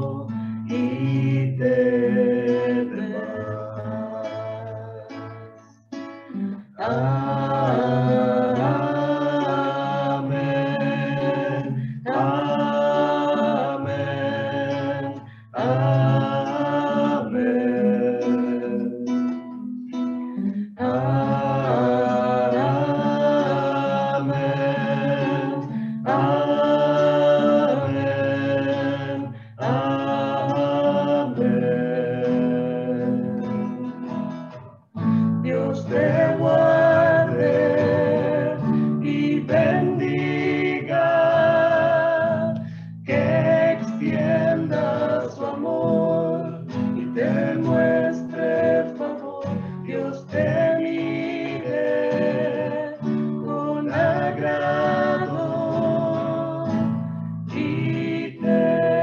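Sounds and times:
people singing: 0.0 - 19.5, 20.4 - 59.0
strummed guitar: 0.0 - 59.0
singers breathing: 11.7 - 12.1, 15.2 - 15.6, 25.7 - 26.0, 29.3 - 29.6, 35.0 - 35.4, 42.6 - 43.1.

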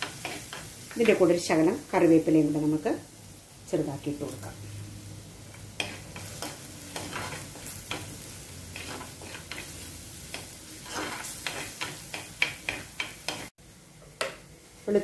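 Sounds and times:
food sizzling in ghee: 0.0 - 15.0
steel spoon scraping pot: 5.8 - 8.1, 8.7 - 13.4.

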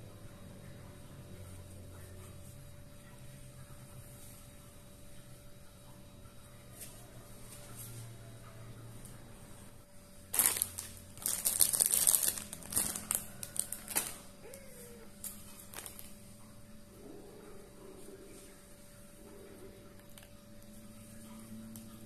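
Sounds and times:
plastic packaging crinkling: 10.3 - 14.3, 15.2 - 16.2.

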